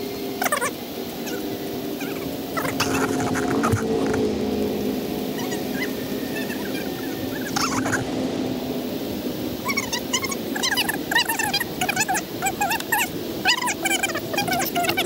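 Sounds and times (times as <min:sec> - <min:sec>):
low steady hum: 0:00.0 - 0:15.0
animal whining calls: 0:00.4 - 0:04.2, 0:05.3 - 0:08.1, 0:09.6 - 0:15.0.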